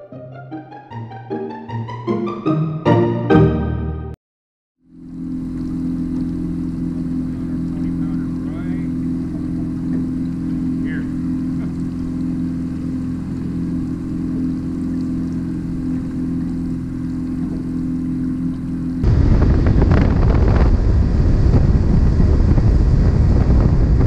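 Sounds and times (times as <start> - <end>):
outboard motor droning: 4.8 - 24.0
wind buffeting microphone: 19.0 - 24.0.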